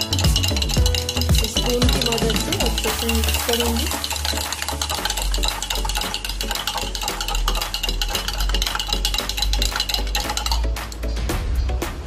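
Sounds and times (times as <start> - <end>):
spoon clinking against glass mug: 0.0 - 11.0
background music with pulsing bass: 0.0 - 12.0.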